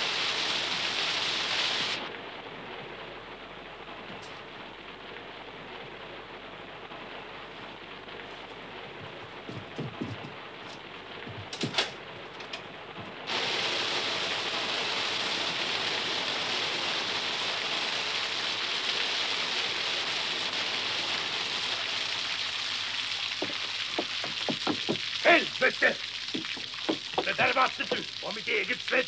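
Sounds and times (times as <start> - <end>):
sharp knocks: 9.5 - 10.4, 23.4 - 25.1, 26.4 - 28.0
water gushing down: 13.2 - 29.0.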